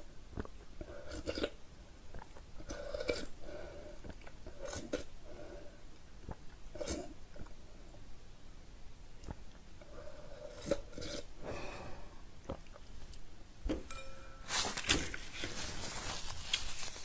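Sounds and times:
mouth sucking: 6.2 - 7.5
glass bowl clinking on table: 13.8 - 14.5.

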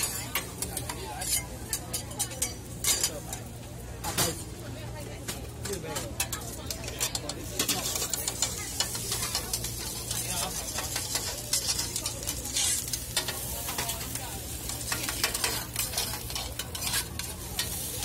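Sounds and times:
metal tongs clicking and scraping: 0.0 - 3.5, 5.6 - 17.9
potato sizzling on a griddle: 0.0 - 18.0.

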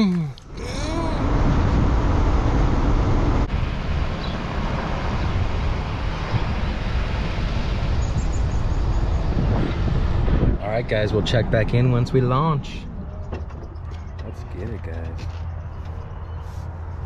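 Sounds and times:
road noise: 0.0 - 17.0
wind rush: 0.6 - 13.2.

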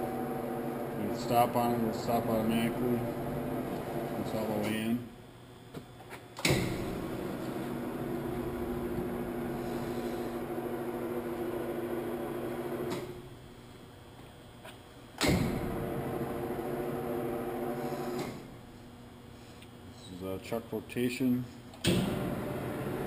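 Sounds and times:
grinder drive humming: 0.0 - 5.0, 6.8 - 13.2
machine clunk: 6.4 - 7.0, 15.2 - 15.8.

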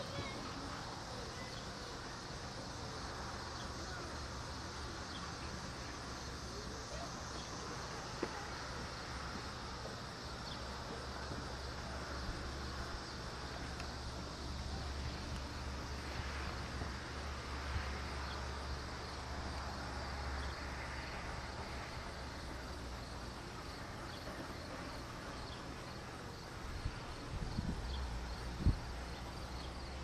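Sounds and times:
distant steam locomotive rumble: 0.0 - 30.0
insects chirping: 0.0 - 30.0.

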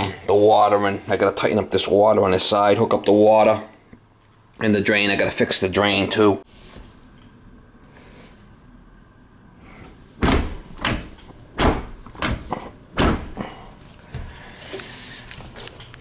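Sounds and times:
dishwasher door and racks banging: 10.2 - 13.6.

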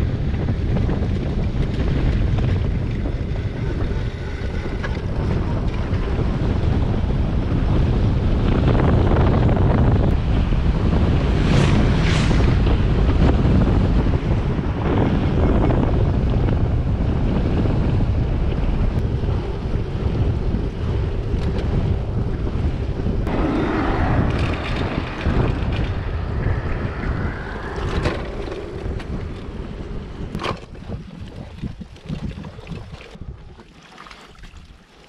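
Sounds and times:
wind buffeting microphone: 0.0 - 33.7
passing vehicle: 2.6 - 30.4.

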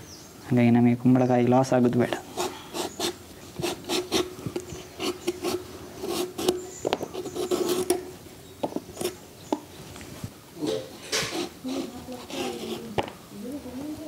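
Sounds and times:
knife scraping gourd skin: 2.2 - 9.2, 10.6 - 13.0.

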